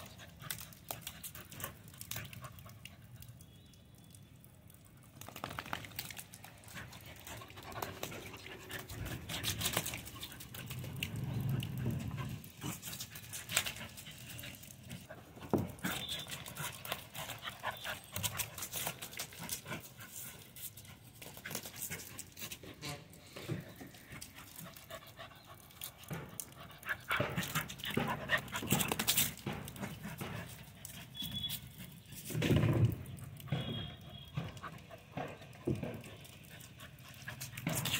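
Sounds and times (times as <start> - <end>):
paws splashing through puddles: 0.0 - 37.9
puppy panting: 6.5 - 22.7, 23.9 - 32.1, 33.2 - 37.9.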